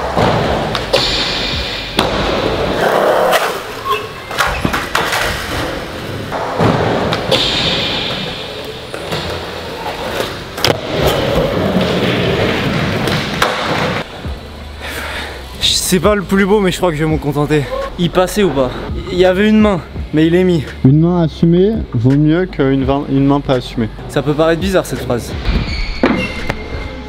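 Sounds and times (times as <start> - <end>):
skateboard wheels rolling: 8.2 - 14.1.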